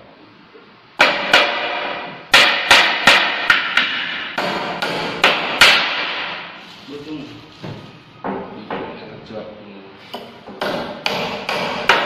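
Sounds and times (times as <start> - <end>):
hammer driving nails into wood: 10.6 - 12.0.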